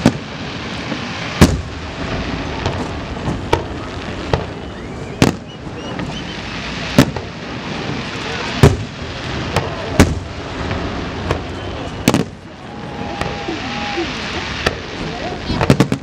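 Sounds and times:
crackle of burning fireworks: 0.0 - 16.0.

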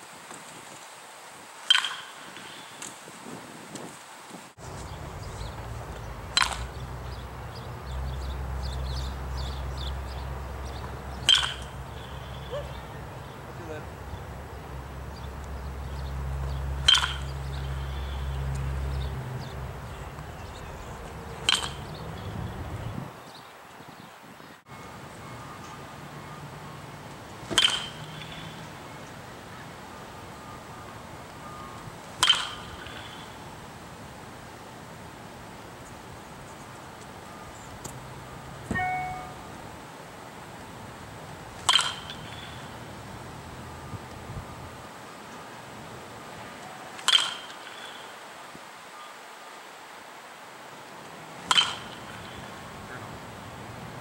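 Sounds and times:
baseball bat hitting ball: 1.7 - 2.2, 6.3 - 6.8, 11.1 - 12.9, 16.8 - 18.2, 21.4 - 22.0, 27.5 - 28.5, 32.2 - 33.2, 38.7 - 39.4, 41.6 - 42.6, 47.0 - 47.8, 51.4 - 52.5
brief ringing tone: 38.7 - 39.6.

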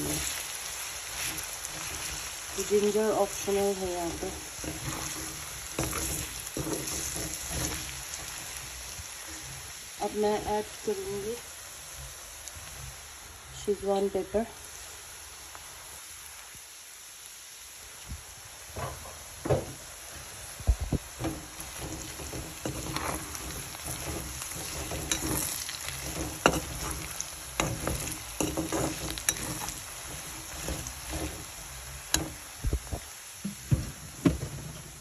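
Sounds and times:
metal spatula scraping wok: 0.0 - 10.6, 21.2 - 32.6
meat sizzling in oil: 0.0 - 35.0.

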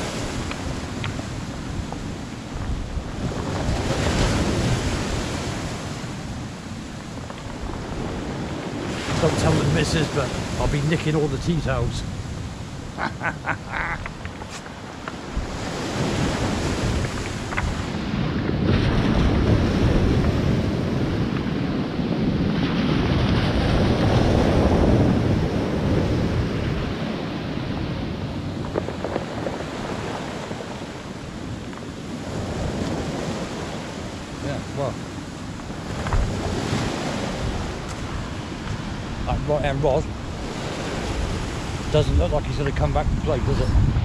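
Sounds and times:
waves breaking on pebble beach: 0.0 - 44.0
wind buffeting microphone: 0.0 - 44.0.

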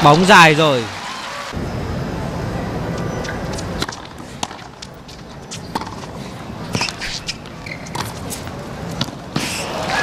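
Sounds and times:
tennis ball bouncing on court: 3.2 - 9.7.

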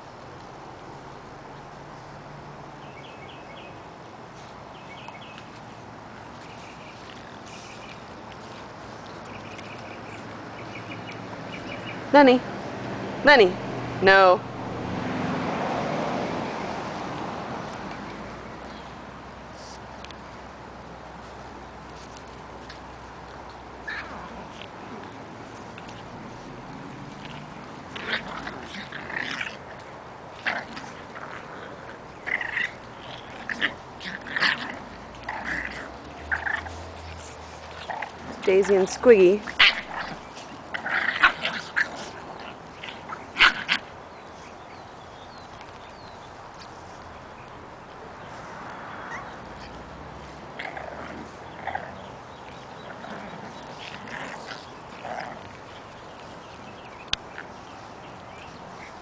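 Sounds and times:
puppies yipping and squeaking: 6.3 - 12.0, 23.8 - 59.0.

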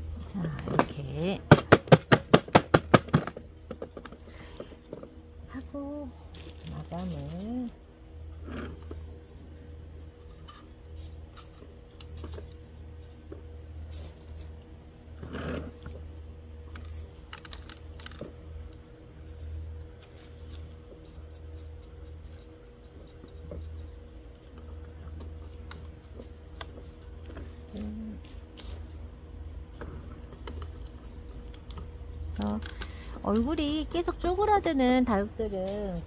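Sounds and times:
steady low hum: 0.0 - 36.0
pebbles clicking and rattling: 6.1 - 7.8, 16.6 - 29.1.

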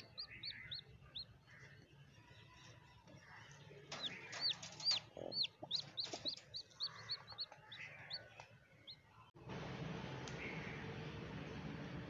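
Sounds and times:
hen clucking: 0.0 - 1.3, 3.9 - 8.5
chick peeping: 0.0 - 1.4, 3.9 - 9.0.

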